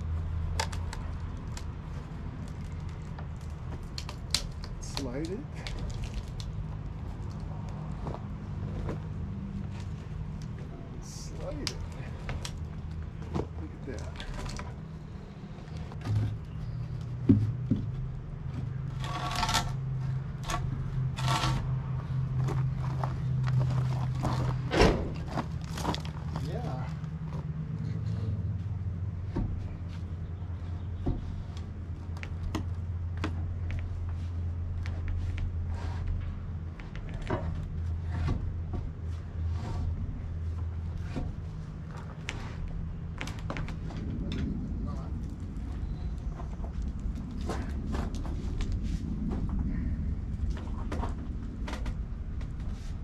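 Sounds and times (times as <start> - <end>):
low hum: 0.0 - 53.0
wooden knocks of log: 17.2 - 18.7
log scraping on timber: 18.6 - 26.5
cant hook scraping log: 18.9 - 21.7.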